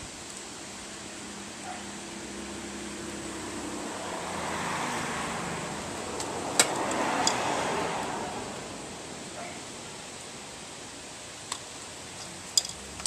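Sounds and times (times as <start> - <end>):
vehicle passing: 1.2 - 10.1.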